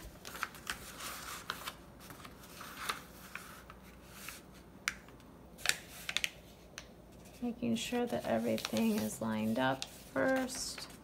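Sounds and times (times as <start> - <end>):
paper crackles: 0.0 - 4.4, 7.7 - 11.0
paper rustling and crinkling: 0.0 - 4.5, 7.2 - 11.0.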